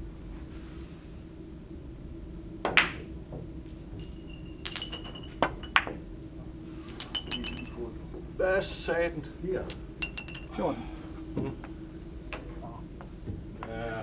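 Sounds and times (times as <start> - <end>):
cue striking ball: 2.6 - 6.1, 6.9 - 7.8
billiard balls clicking: 2.7 - 6.0, 6.9 - 7.8, 9.7 - 10.6
faint ringing tone: 3.7 - 8.0, 10.0 - 12.8.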